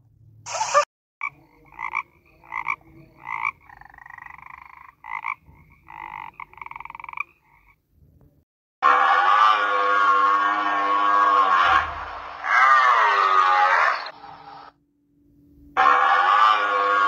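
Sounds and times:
frog croaking: 0.5 - 7.8.

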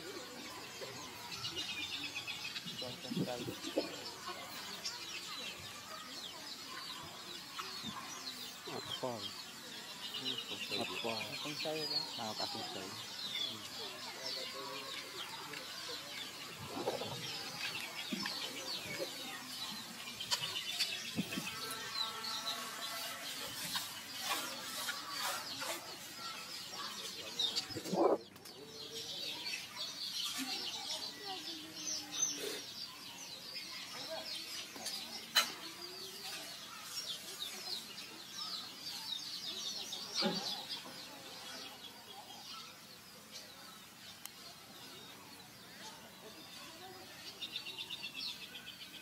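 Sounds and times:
birds chirping: 0.0 - 49.0
low clucking calls: 16.6 - 18.4, 27.5 - 28.3.

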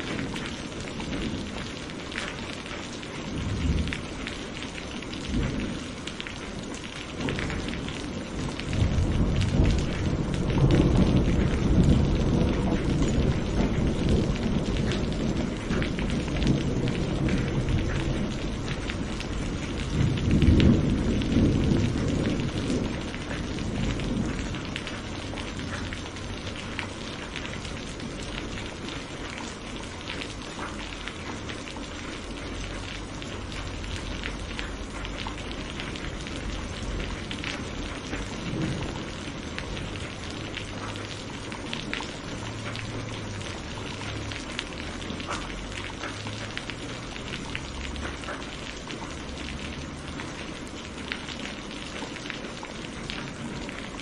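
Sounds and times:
steady rain falling: 0.0 - 54.0
rolling thunder: 3.2 - 29.1, 33.4 - 44.4.

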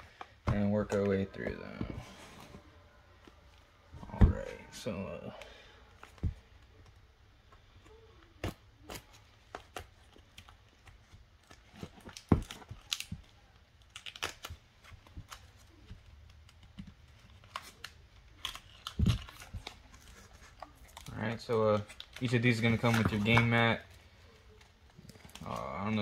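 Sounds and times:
plastic shrink wrap crackling: 7.9 - 26.0.

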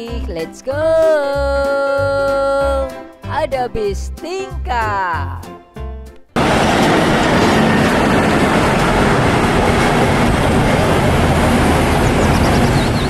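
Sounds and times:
city traffic rumble: 6.4 - 13.0.

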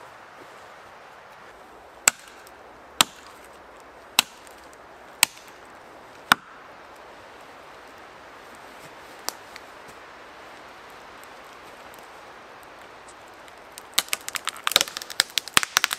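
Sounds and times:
axe chopping tree trunk: 2.0 - 3.5, 4.1 - 4.6, 5.2 - 5.6, 6.2 - 6.6, 14.0 - 15.9.

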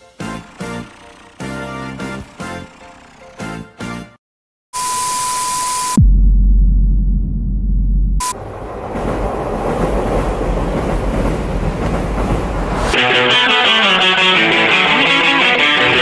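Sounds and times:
passing train rumble: 8.3 - 13.1
guitar rock music: 13.0 - 16.0.

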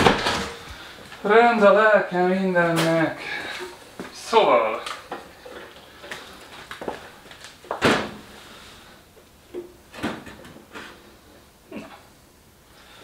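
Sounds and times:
objects knocking and scraping: 9.5 - 11.0.

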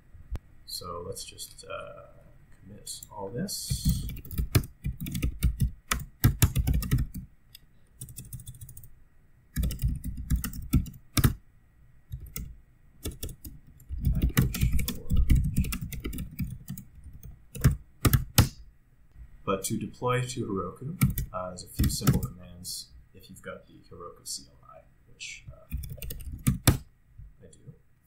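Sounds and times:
keyboard typing clicks: 3.7 - 7.2, 9.6 - 11.4, 12.1 - 18.6, 25.7 - 26.8.

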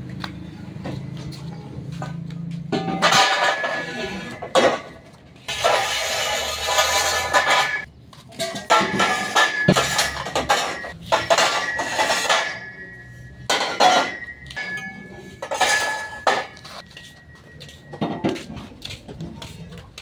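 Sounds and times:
metal objects clattering: 2.7 - 18.6.

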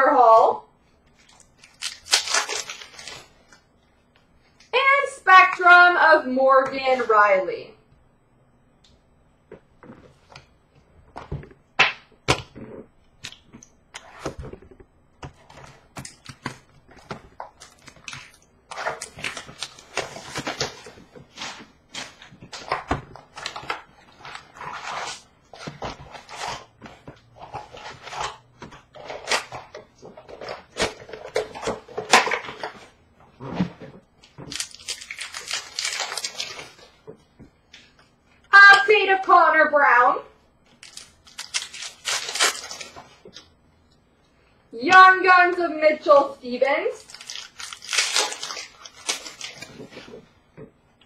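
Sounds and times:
papery rustling: 47.0 - 50.3.

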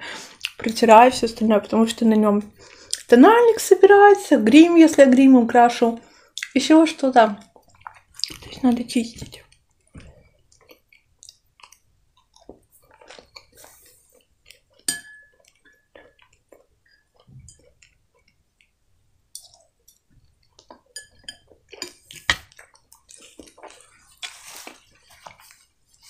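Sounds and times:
close-up chewing: 7.4 - 18.8, 19.4 - 26.0
metal spoon clinking glass bowl: 14.9 - 15.9, 20.9 - 22.4.

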